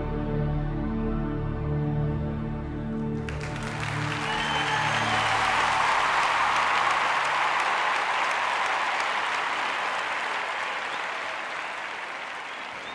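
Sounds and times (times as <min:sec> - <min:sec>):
audience applauding: 0:03.2 - 0:12.9.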